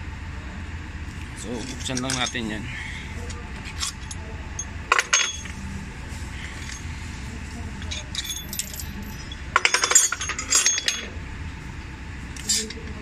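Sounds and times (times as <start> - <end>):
steady low hum: 0.0 - 13.0
metal tools clinking: 1.6 - 2.6, 3.2 - 5.6, 6.4 - 6.9, 7.8 - 11.2, 12.4 - 12.9.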